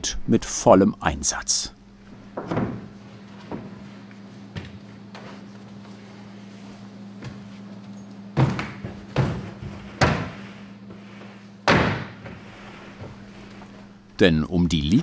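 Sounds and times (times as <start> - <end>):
wooden boards thumping: 8.4 - 10.4, 11.6 - 12.4.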